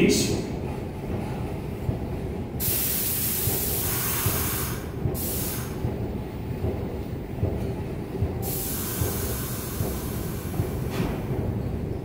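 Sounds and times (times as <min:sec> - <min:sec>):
low train rumble: 0:00.0 - 0:12.0
compressed air hiss: 0:02.6 - 0:05.8, 0:08.4 - 0:11.0.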